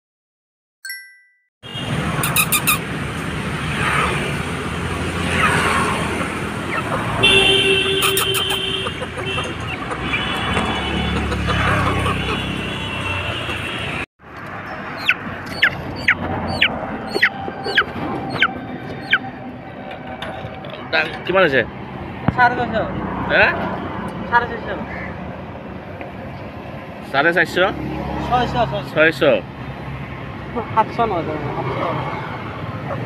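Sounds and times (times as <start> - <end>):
vehicle horns tooting: 1.6 - 2.8, 7.0 - 14.1
roadside traffic noise: 1.6 - 33.0.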